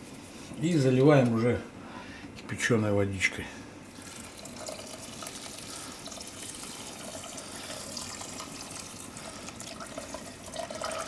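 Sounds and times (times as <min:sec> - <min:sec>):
water pouring into pot: 0:04.0 - 0:11.0.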